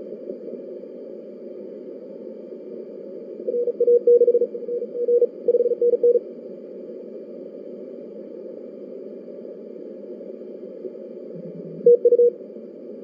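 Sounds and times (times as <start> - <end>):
steady radio band noise: 0.0 - 13.0
morse code tone: 11.8 - 12.3.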